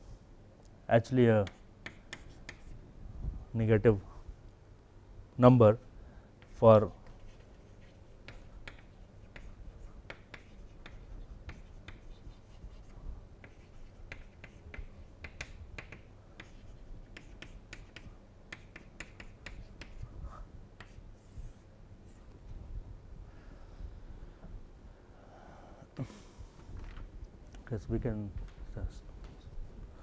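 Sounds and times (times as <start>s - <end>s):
low room hum: 0.0s - 30.0s
chalk tapping on blackboard: 1.4s - 2.8s, 6.4s - 20.0s, 20.8s - 21.0s.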